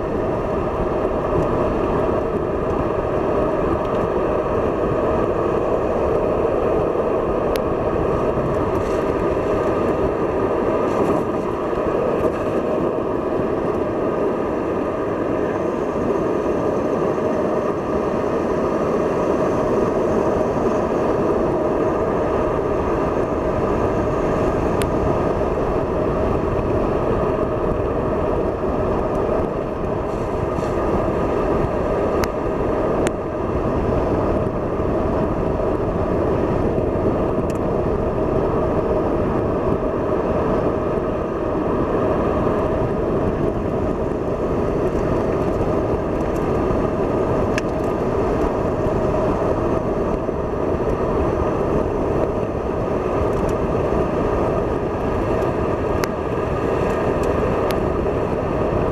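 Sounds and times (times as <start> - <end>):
car engine and tyre drone: 0.0 - 58.9.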